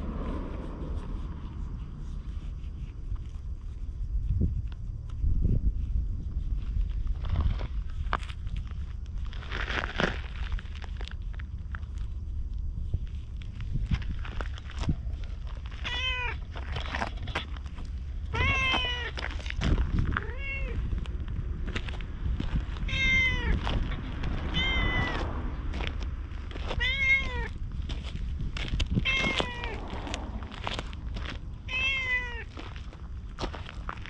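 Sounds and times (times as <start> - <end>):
cat meowing: 15.8 - 16.5, 18.3 - 19.2, 20.2 - 20.9, 22.8 - 23.6, 24.5 - 25.2, 26.8 - 27.6, 29.0 - 29.8, 31.6 - 32.5.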